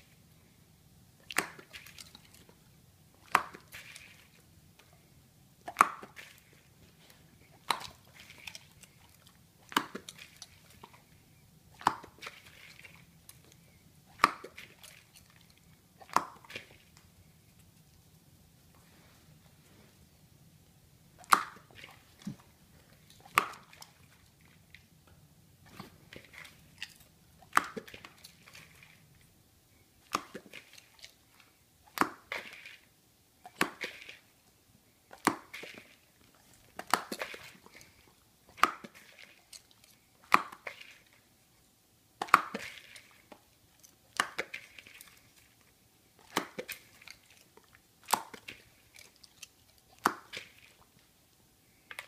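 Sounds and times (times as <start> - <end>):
dog crunching popcorn: 5.6 - 11.1, 25.6 - 29.2, 35.0 - 41.2, 42.2 - 51.0.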